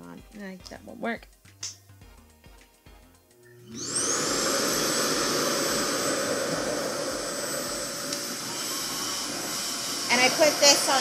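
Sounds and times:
suction motor whining and rushing air: 3.5 - 11.0.

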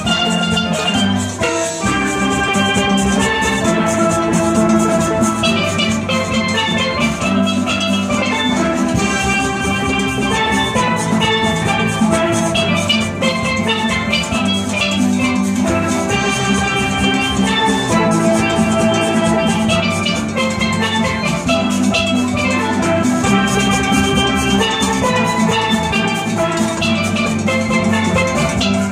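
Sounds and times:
percussion beat: 0.0 - 28.9
steel band playing: 0.0 - 28.9.

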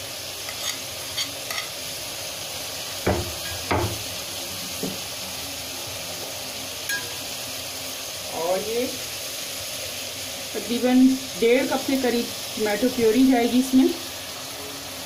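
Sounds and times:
food sizzling in a metal pot: 0.0 - 15.0
spoon scraping a pot: 0.5 - 1.8
spoon knocking against pot: 3.1 - 4.0.

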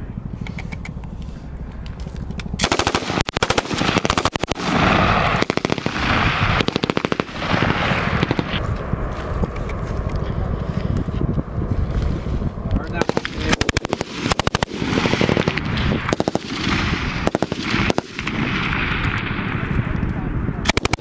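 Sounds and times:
machine gun automatic bursts: 2.5 - 8.6, 13.0 - 19.5, 20.6 - 21.0
faint scattered gunshots: 2.6 - 8.6, 12.9 - 20.0, 20.6 - 21.0.

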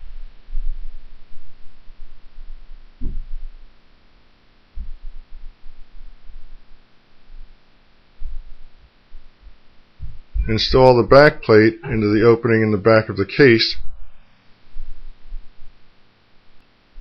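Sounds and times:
low hum: 0.0 - 17.0
dull thumps: 1.9 - 3.7, 4.8 - 6.6, 8.2 - 12.2.

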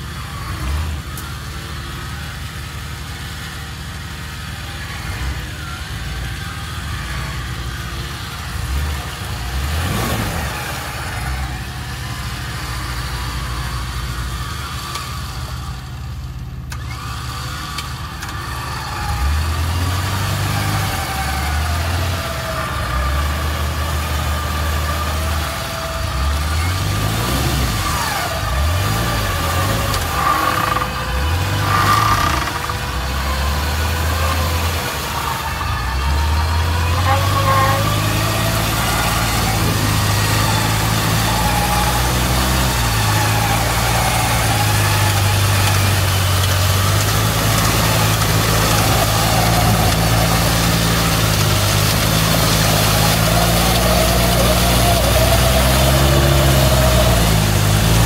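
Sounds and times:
truck engine rumble: 0.0 - 58.0
electric winch motor whine: 24.0 - 58.0.

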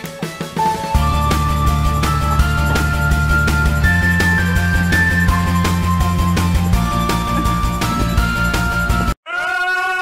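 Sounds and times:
background music with drum beat: 0.0 - 9.2.

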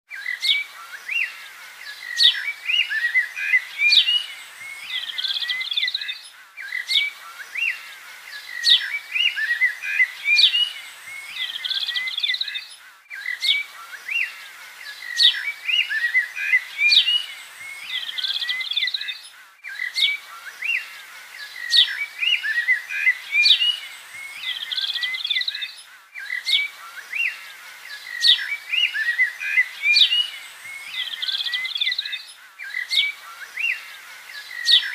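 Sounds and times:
small birds chirping: 0.1 - 34.9.

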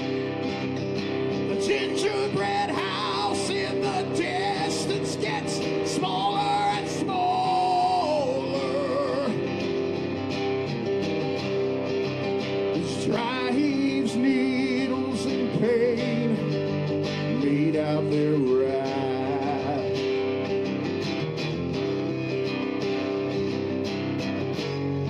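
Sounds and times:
guitar chords: 0.0 - 25.0
bending lead melody: 16.4 - 25.0.

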